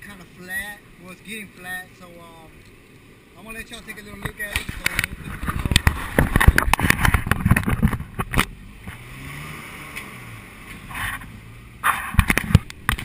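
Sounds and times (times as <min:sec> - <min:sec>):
road noise: 0:00.0 - 0:13.0
wind buffeting: 0:03.1 - 0:08.4
camera handling bumps: 0:04.2 - 0:08.5, 0:12.2 - 0:13.0.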